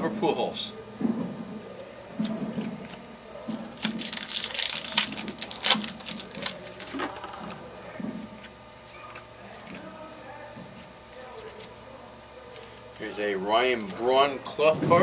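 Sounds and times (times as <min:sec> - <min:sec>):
quiet handling: 0:00.8 - 0:15.0
wrapper crinkling: 0:02.9 - 0:07.6.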